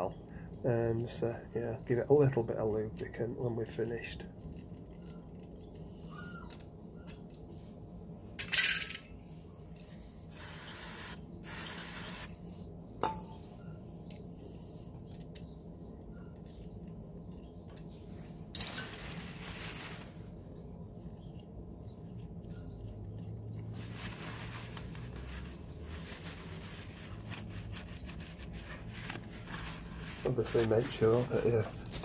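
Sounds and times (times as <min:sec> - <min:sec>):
aerosol can spraying: 0:10.3 - 0:12.4.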